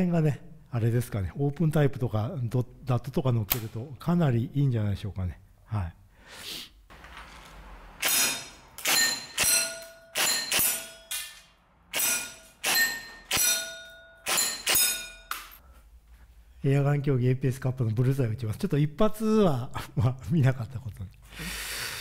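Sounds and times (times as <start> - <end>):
airsoft gun shots: 8.0 - 11.0
ringing metallic clang: 8.0 - 15.6.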